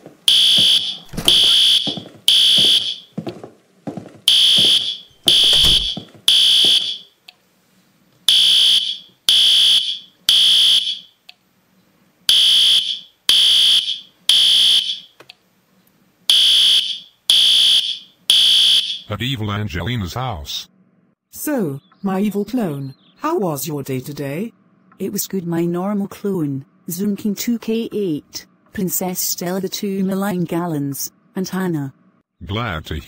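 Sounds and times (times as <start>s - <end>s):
fire alarm beeps: 0.3s - 3.1s, 4.3s - 7.1s, 8.3s - 11.2s, 12.3s - 15.2s, 16.3s - 19.1s.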